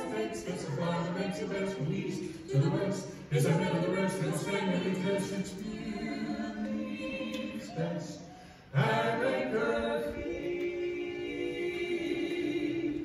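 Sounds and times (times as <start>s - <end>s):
vocal group singing in harmony: 0.0s - 13.0s.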